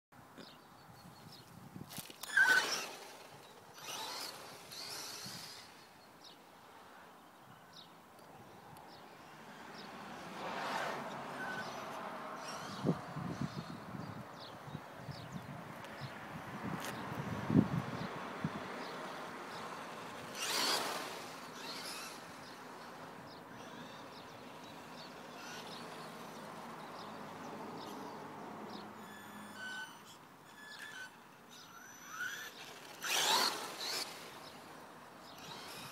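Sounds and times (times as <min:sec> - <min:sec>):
small birds chirping: 0:00.2 - 0:10.2, 0:11.1 - 0:16.2, 0:16.8 - 0:35.9
outdoor background hiss: 0:00.2 - 0:35.9
tyres on asphalt: 0:00.2 - 0:35.9
electric motor whine: 0:02.0 - 0:05.9, 0:20.1 - 0:23.0, 0:29.0 - 0:35.9.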